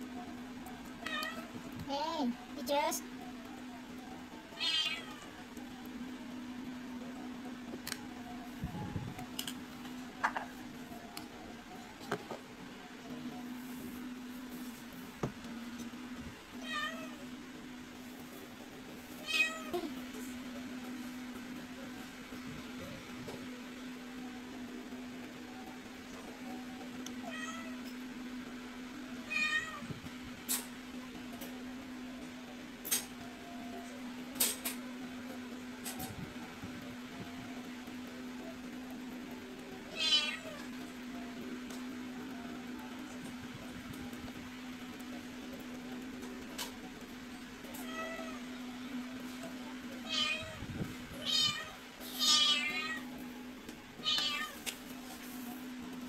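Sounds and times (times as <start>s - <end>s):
cat meowing: 4.6s - 5.2s, 40.0s - 40.6s, 51.2s - 53.0s, 54.0s - 54.6s.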